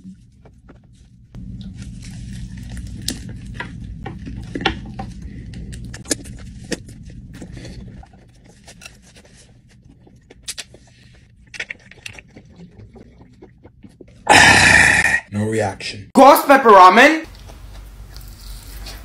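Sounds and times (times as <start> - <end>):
biting and chewing food: 0.0 - 14.3
steady low hum: 0.0 - 16.1.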